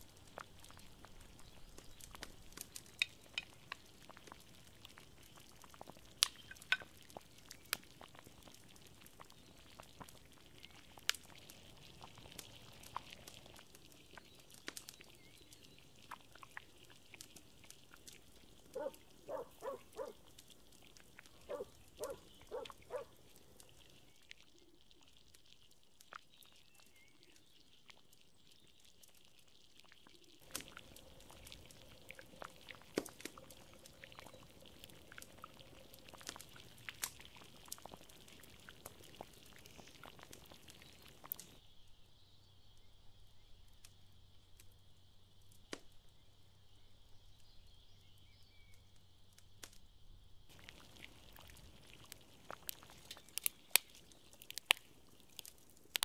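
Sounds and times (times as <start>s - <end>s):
wood fire crackling: 0.0s - 42.0s, 42.7s - 56.0s
animal calling: 18.7s - 20.2s, 21.4s - 23.2s.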